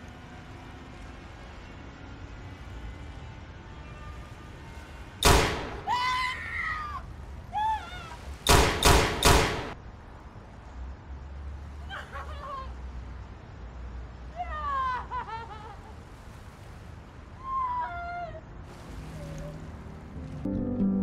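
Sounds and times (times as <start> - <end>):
handgun shots: 8.5 - 9.8.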